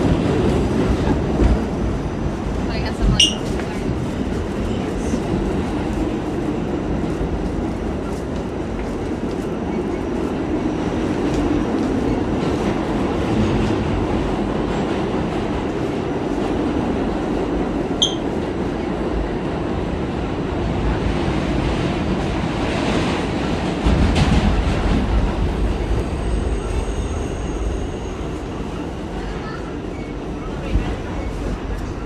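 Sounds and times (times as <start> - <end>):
train wheels rumbling on track: 0.0 - 32.0
high wheel squeal: 18.0 - 18.2.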